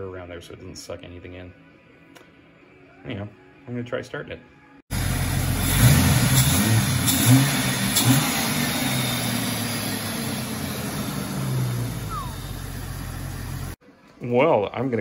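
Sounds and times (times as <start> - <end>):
car engine revving and idling: 4.9 - 13.8.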